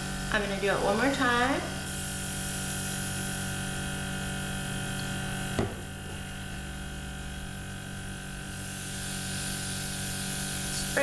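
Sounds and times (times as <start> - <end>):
air compressor humming: 0.0 - 11.0
air hissing: 1.7 - 3.4, 8.3 - 11.0.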